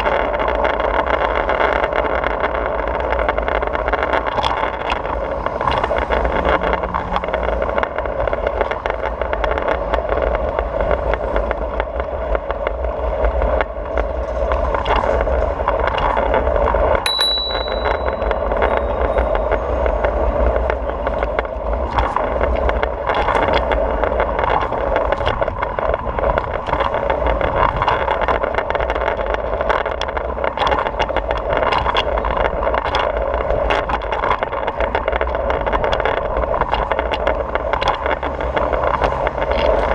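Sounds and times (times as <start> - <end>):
scooter wheels rolling on paving: 0.0 - 39.9
brief high ring: 17.1 - 19.6.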